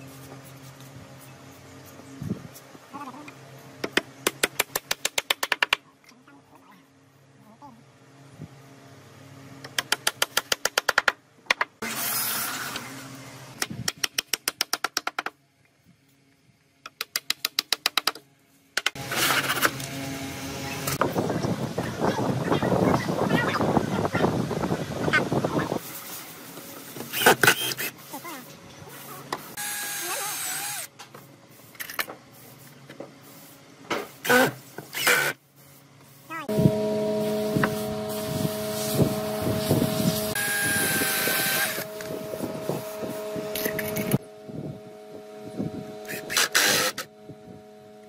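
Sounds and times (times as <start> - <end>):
cordless drill whine: 29.6 - 30.9, 36.5 - 44.2, 46.0 - 47.1.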